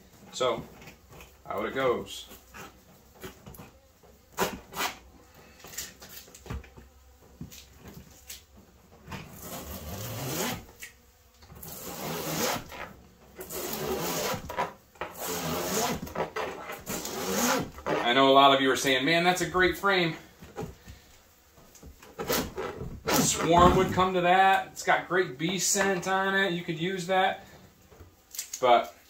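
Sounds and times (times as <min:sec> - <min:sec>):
scraper scratching through wax: 0:01.2 - 0:06.8, 0:09.1 - 0:19.6, 0:21.8 - 0:26.4.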